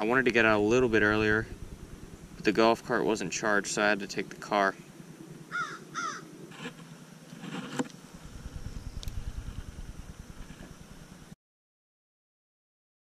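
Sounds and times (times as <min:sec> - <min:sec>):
low rumble: 0:00.2 - 0:03.8, 0:08.1 - 0:11.4
crow cawing: 0:05.5 - 0:06.3.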